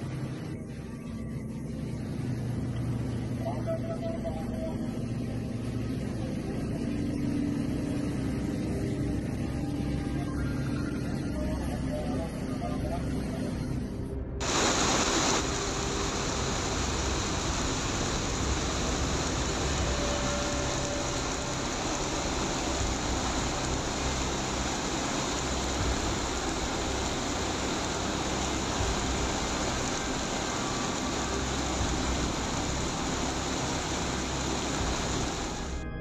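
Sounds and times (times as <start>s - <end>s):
heavy rain on car and pavement: 14.4s - 35.8s.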